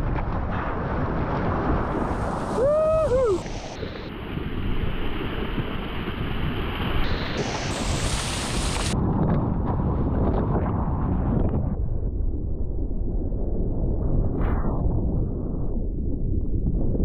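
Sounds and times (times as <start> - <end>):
wind buffeting microphone: 0.0 - 17.0
rushing splashing water: 0.7 - 9.0
person whooping: 2.5 - 3.5.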